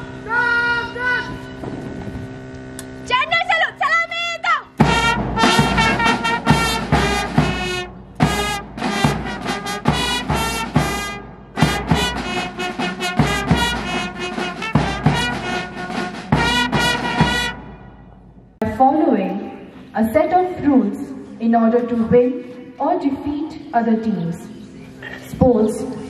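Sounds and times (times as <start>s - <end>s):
trumpets and sousaphone: 3.9s - 18.1s
bass drum: 4.8s - 17.6s
snare drum: 4.8s - 17.7s.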